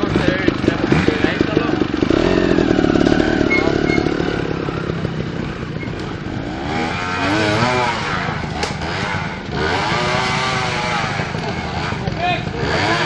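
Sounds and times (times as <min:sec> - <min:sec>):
motorcycle engine revving: 0:00.0 - 0:13.0
sharp click: 0:08.6 - 0:08.8.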